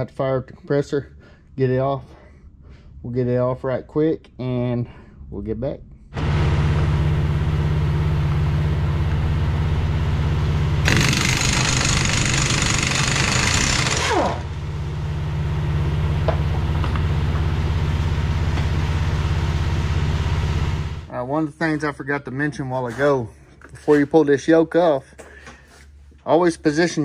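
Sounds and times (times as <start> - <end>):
air compressor running: 6.2 - 21.1
air impact wrench hammering: 10.8 - 14.6.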